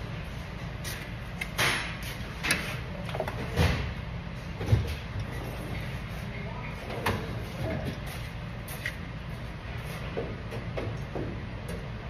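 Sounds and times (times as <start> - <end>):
low workshop hum: 0.0 - 12.0.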